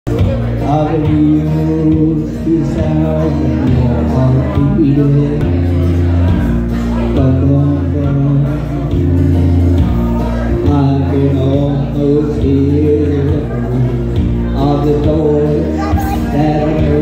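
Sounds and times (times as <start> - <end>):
karaoke backing track: 0.1 - 17.0
man singing into microphone: 0.1 - 17.0.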